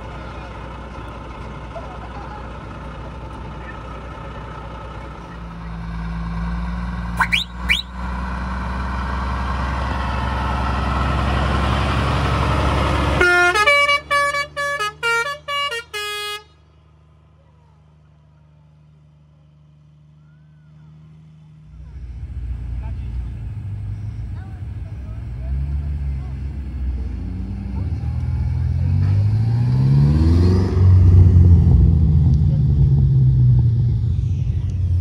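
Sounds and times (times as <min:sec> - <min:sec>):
truck diesel engine revving: 0:00.0 - 0:17.3, 0:18.8 - 0:35.0
short rising whistles: 0:07.2 - 0:08.0
musical air horns playing tune: 0:13.2 - 0:16.6.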